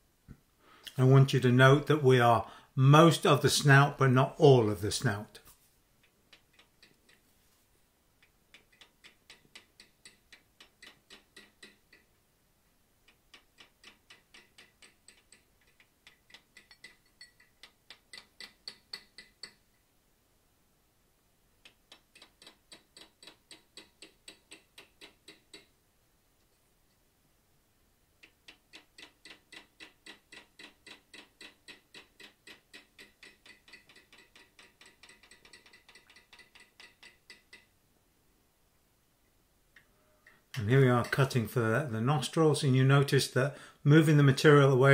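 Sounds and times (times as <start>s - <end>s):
hammer tapping chisel on steel: 8.2s - 12.2s, 13.1s - 19.7s, 21.6s - 25.7s, 28.2s - 37.7s, 39.8s - 41.4s.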